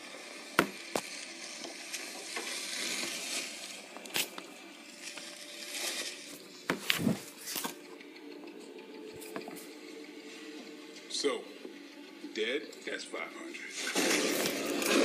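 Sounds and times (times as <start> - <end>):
plush toys rustling: 3.9 - 7.8.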